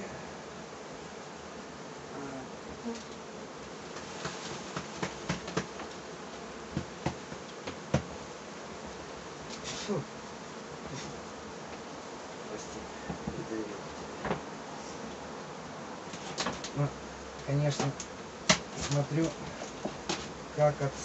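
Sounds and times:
bees buzzing: 0.0s - 21.0s
wooden hive frames knocking: 2.6s - 9.6s, 13.0s - 13.5s, 14.1s - 14.6s, 16.0s - 20.5s.

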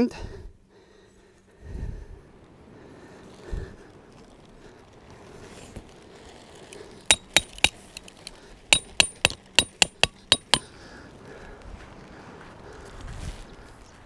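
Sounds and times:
hammer striking metal tent peg: 7.1s - 8.0s, 8.8s - 10.7s.

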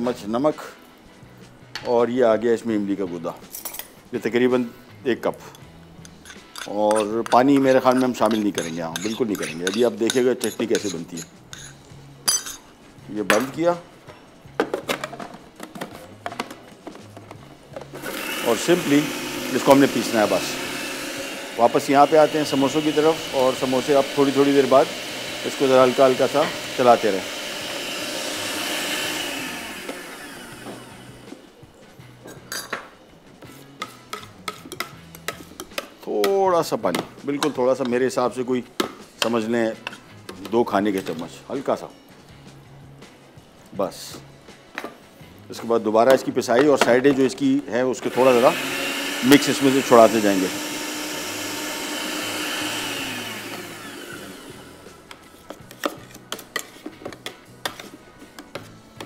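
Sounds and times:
soft background music: 0.0s - 59.0s
kitchen utensils clinking: 5.5s - 12.7s, 32.3s - 32.9s
blender motor winding down: 18.0s - 31.4s, 48.1s - 54.9s.

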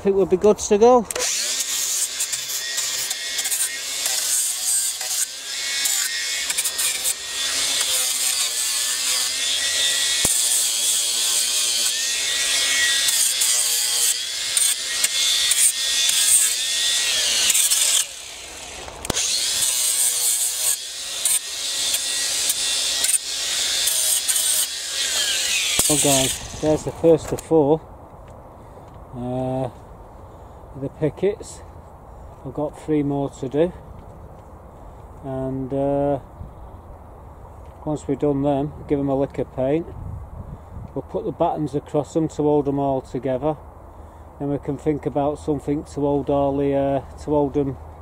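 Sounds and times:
angle grinder motor whine: 1.1s - 27.0s
sanding disc rasping on wood: 1.2s - 26.9s.

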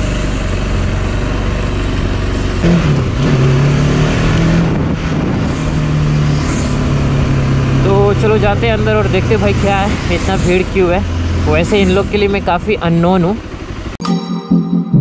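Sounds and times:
wind rumble on microphone: 4.4s - 7.8s
motorcycle engine running: 5.2s - 14.0s.

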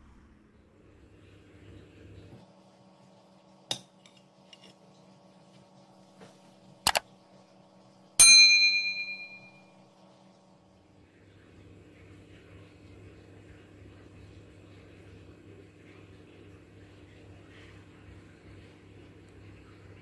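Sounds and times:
bright bell ding: 8.2s - 9.6s.

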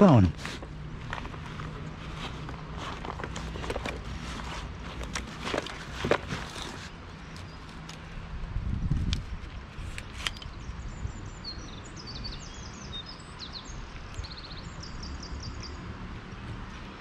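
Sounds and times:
outdoor background noise: 0.0s - 17.0s
songbird chirping: 9.5s - 17.0s.

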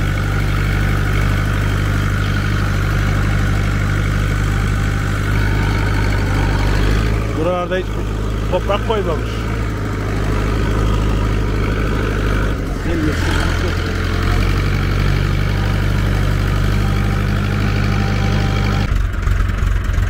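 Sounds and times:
driving over dirt track: 0.0s - 20.0s
vehicle engine running: 0.0s - 20.0s.

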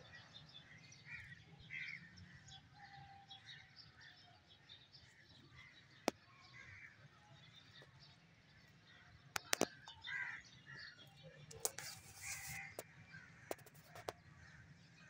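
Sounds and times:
faint birds chirping: 0.0s - 15.0s
sharp click: 9.4s - 9.8s, 13.5s - 14.2s.

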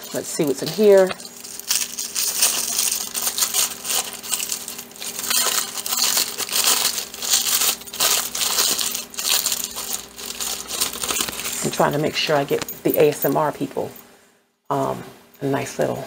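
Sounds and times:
tissue paper crinkling: 0.0s - 12.8s.

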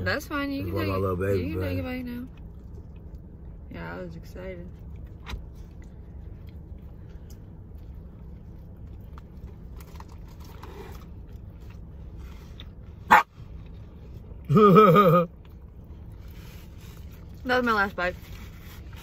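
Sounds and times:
low rumble of wind: 0.0s - 14.5s
dog barking: 13.1s - 13.3s.

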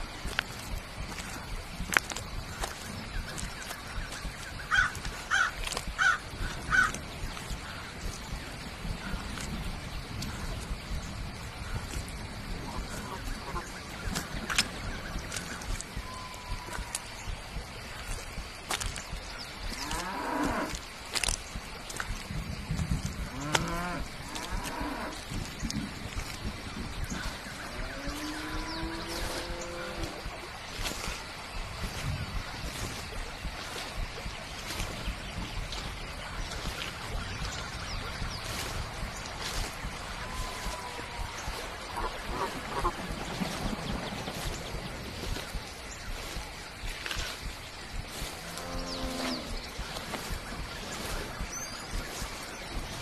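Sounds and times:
crow cawing: 4.7s - 6.9s.

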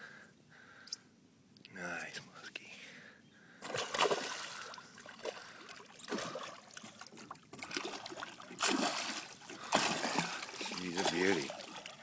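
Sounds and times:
fish thrashing water splashing: 3.6s - 12.0s.

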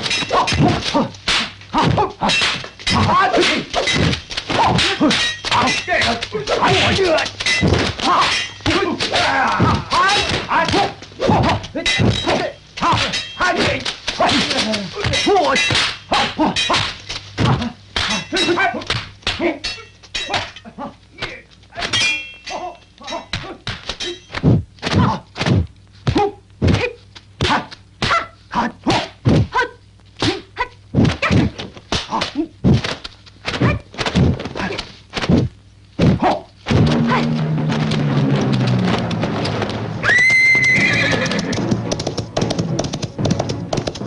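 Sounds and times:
punch and kick impacts: 23.4s - 26.8s, 31.0s - 39.4s.

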